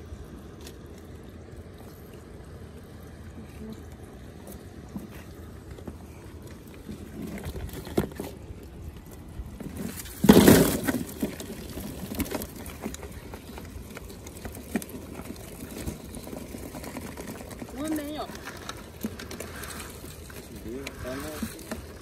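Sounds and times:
crayfish rattling into cooler: 0:06.8 - 0:08.4, 0:09.4 - 0:22.0.

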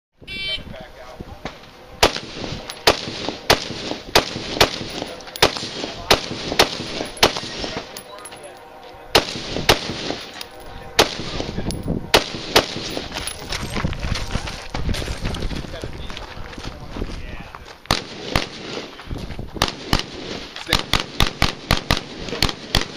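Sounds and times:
rifle shots: 0:02.0 - 0:08.0, 0:09.1 - 0:11.5, 0:12.1 - 0:13.2, 0:17.9 - 0:19.0, 0:19.6 - 0:22.9.

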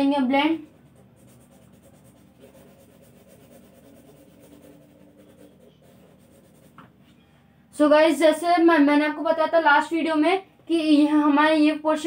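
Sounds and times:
pencil rubbing on paper: 0:00.6 - 0:06.8.

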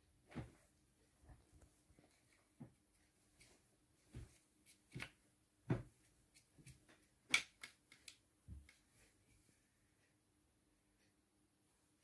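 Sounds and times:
light irregular clicks and taps: 0:04.2 - 0:10.2.

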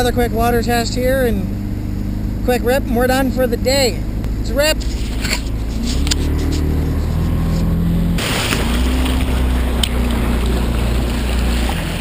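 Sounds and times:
motorboat engine hum: 0:00.0 - 0:12.0
water rushing and splashing: 0:05.2 - 0:12.0.

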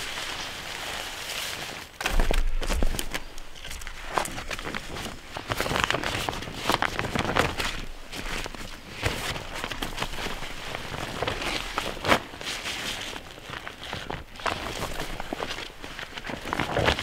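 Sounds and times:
tarp rustling and crinkling: 0:00.0 - 0:17.0
tarp snapping: 0:00.0 - 0:17.0.

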